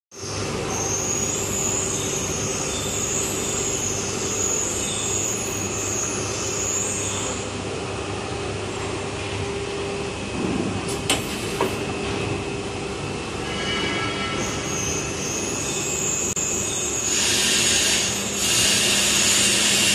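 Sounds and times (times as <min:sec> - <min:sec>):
hydraulic hum: 0:00.2 - 0:19.9
machine clunks: 0:10.3 - 0:12.4.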